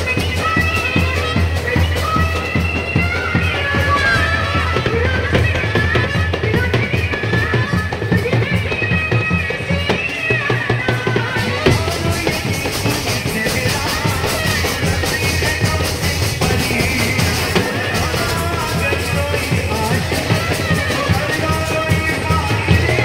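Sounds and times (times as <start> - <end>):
steady drum beat: 0.0 - 23.0
brass band trumpets playing: 2.3 - 6.4.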